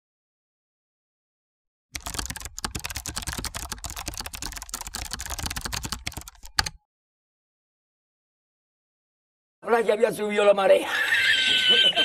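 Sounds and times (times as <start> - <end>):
fast typing on keyboard: 2.0 - 6.8.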